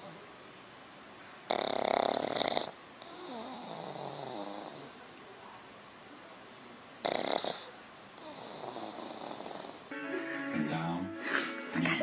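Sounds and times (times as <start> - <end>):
dog snoring: 1.5 - 5.0, 7.0 - 9.9.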